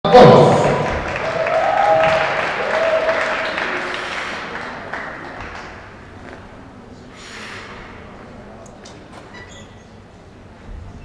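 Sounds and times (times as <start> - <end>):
audience applauding: 0.3 - 6.2.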